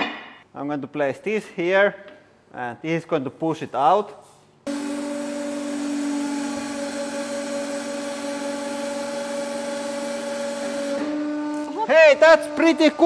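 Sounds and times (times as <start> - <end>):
hydraulic pump humming and hissing: 4.7 - 13.0.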